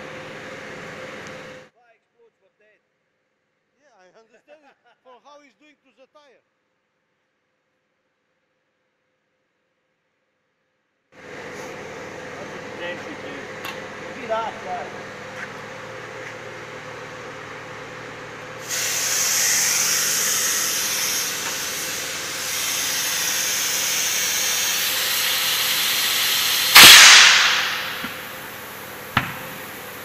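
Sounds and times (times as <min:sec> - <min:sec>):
compressed air hissing: 0:18.6 - 0:30.0
loud blast of air: 0:18.6 - 0:30.0.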